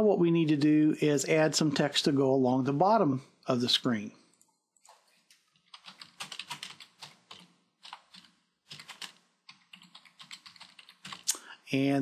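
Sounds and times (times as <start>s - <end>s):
computer keyboard typing: 5.3s - 11.4s.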